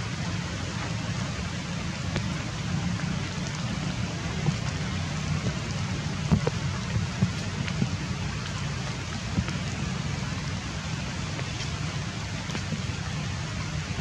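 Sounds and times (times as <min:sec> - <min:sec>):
light rain hissing: 0:00.0 - 0:14.0
raindrops ticking: 0:00.0 - 0:14.0.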